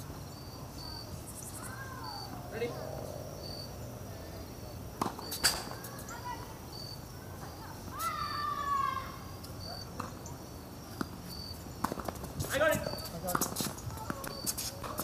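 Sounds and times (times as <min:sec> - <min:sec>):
crickets chirping: 0:00.0 - 0:15.0
tennis balls struck by rackets: 0:04.9 - 0:06.0, 0:11.8 - 0:15.0.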